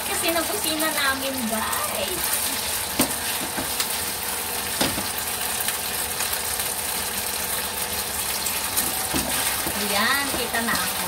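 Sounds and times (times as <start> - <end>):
meat sizzling in a wok: 0.0 - 11.0
spatula knocking a pan: 2.9 - 3.8, 4.8 - 5.2, 8.8 - 11.0.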